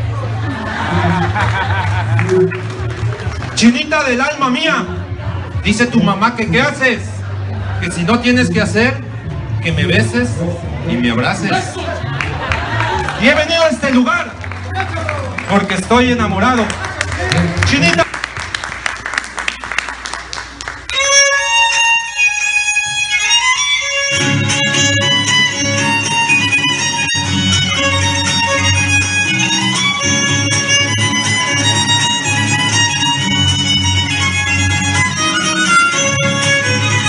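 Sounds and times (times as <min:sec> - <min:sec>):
low rhythmic accompaniment: 0:00.0 - 0:37.0
violin folk dance melody: 0:20.9 - 0:37.0.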